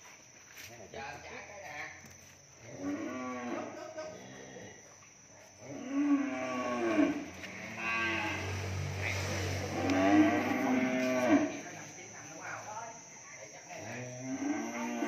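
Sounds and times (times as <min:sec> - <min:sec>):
cattle mooing: 0:05.7 - 0:11.6.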